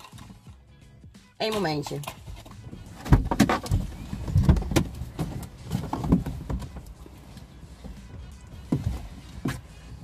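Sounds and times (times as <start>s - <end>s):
knocks and thumps in vehicle: 2.1s - 10.0s.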